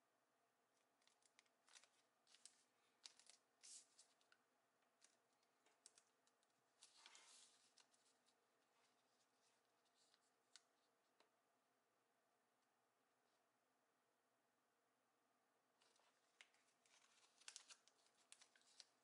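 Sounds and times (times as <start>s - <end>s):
paper rustling and crackling: 1.0s - 10.7s, 15.8s - 19.0s.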